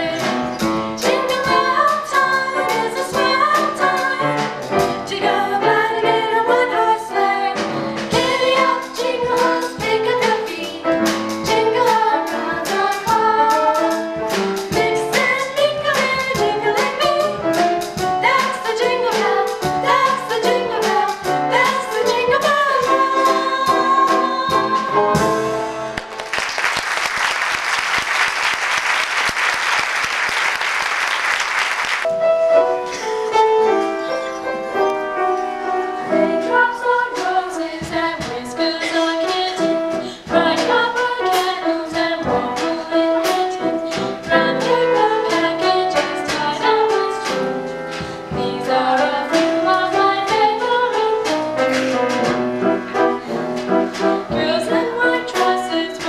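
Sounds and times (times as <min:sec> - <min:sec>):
girls singing: 0:00.0 - 0:14.1, 0:14.7 - 0:25.3, 0:36.0 - 0:51.9, 0:53.0 - 0:56.0.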